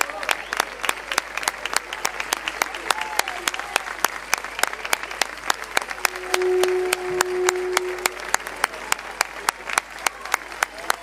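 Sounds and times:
crowd clapping in rhythm: 0:00.0 - 0:11.0
long held note: 0:06.0 - 0:08.8.

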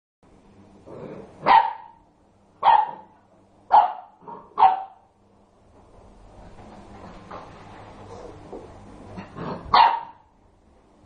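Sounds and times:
puppy barking: 0:01.4 - 0:02.0, 0:02.6 - 0:05.1, 0:09.7 - 0:10.2.

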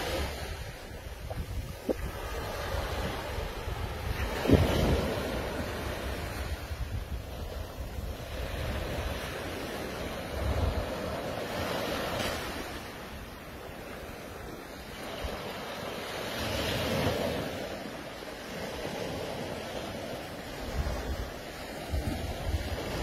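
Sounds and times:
waves washing up beach: 0:00.0 - 0:23.0
wind buffeting microphone: 0:00.0 - 0:23.0.

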